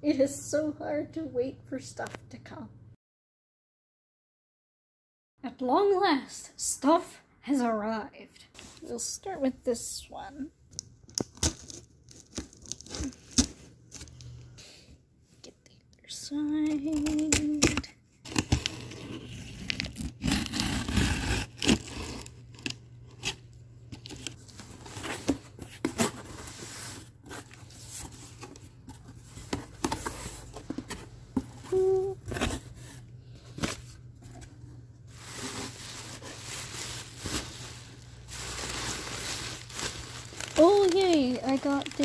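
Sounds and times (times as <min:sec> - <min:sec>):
bubble wrap crinkling: 0:11.0 - 0:14.6, 0:18.2 - 0:42.0
box cutter slitting packing tape: 0:19.6 - 0:23.4.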